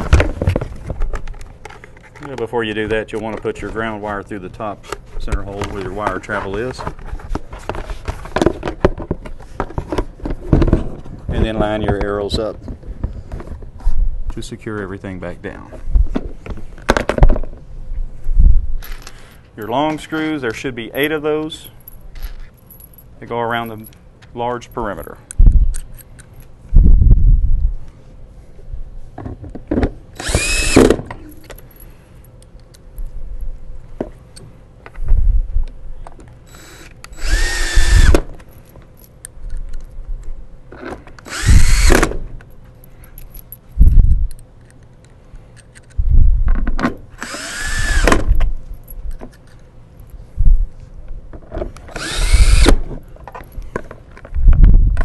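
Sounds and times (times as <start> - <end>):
handling knocks and screws clattering: 18.8 - 24.4, 29.2 - 33.2, 37.2 - 47.5, 48.3 - 50.3, 51.3 - 55.0
cordless drill whirring: 30.2 - 31.0, 36.5 - 38.2, 41.2 - 42.1, 47.2 - 48.2, 51.9 - 52.8.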